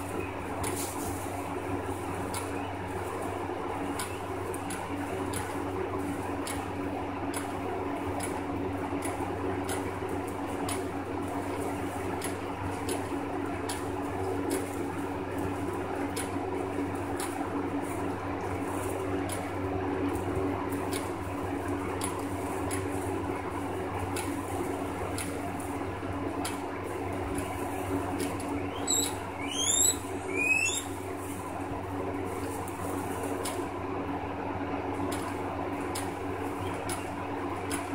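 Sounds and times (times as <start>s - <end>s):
guinea pigs chewing hay: 0.0s - 37.9s
steady hum: 0.0s - 37.9s
guinea pig squeaks: 28.5s - 31.1s.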